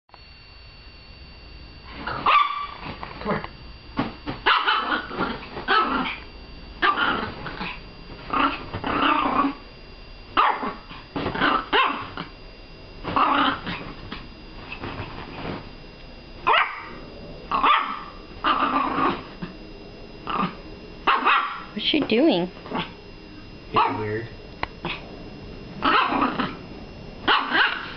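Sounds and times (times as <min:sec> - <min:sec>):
small dog growling and barking: 0:01.9 - 0:09.7, 0:10.4 - 0:12.4, 0:13.0 - 0:15.6, 0:16.4 - 0:19.6, 0:20.2 - 0:21.8, 0:22.6 - 0:24.2, 0:24.8 - 0:27.9.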